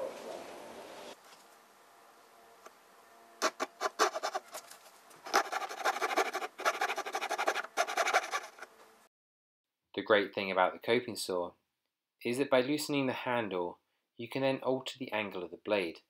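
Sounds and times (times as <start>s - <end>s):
coping saw cutting wood: 3.4s - 8.6s.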